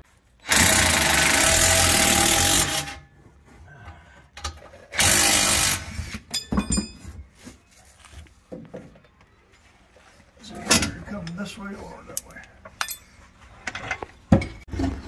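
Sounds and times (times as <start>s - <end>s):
power tool cutting metal pipe: 0.4s - 3.0s, 5.0s - 6.0s.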